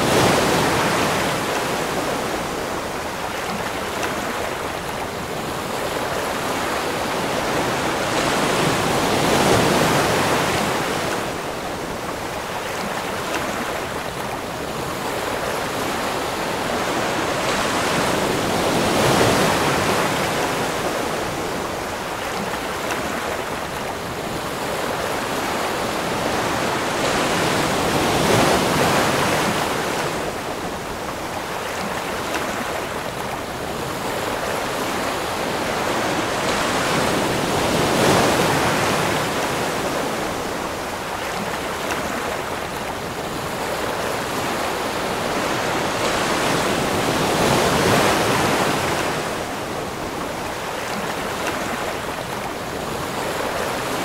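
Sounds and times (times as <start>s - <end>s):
ocean waves washing ashore: 0.0s - 54.0s.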